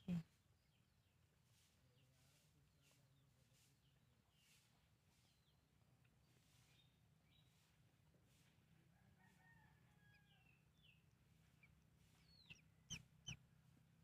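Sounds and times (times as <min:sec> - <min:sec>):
ducklings peeping: 0:10.8 - 0:13.4.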